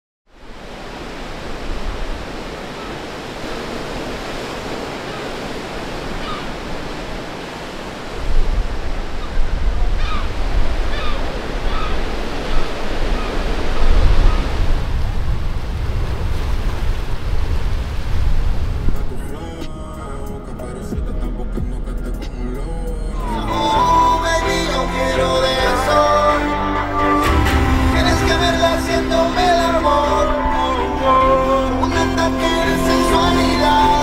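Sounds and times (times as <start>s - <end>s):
surf on rocky shore: 0.3s - 21.0s, 23.2s - 34.0s
wind rumble on microphone: 0.4s - 20.0s
seagull cries: 6.2s - 6.5s, 10.0s - 12.0s.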